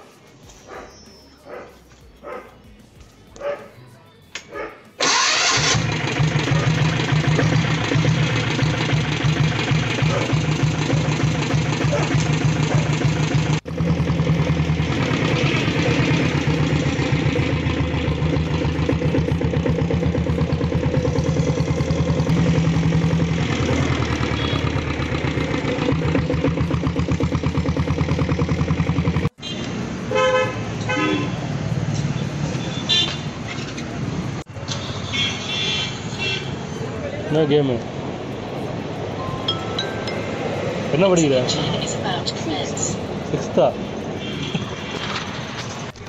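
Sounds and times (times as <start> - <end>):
motorcycle diesel engine running: 5.0 - 29.5.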